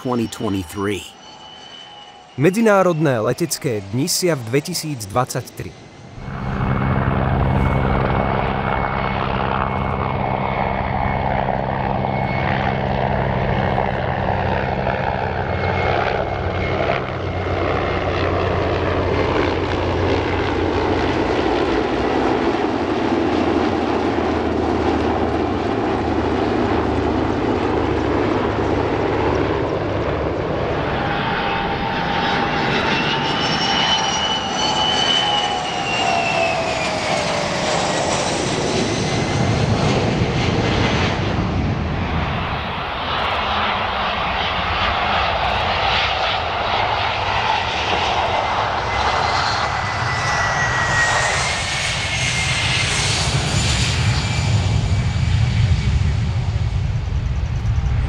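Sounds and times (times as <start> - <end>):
aircraft engines running: 0.0 - 58.0
whine falling in pitch: 6.2 - 12.3.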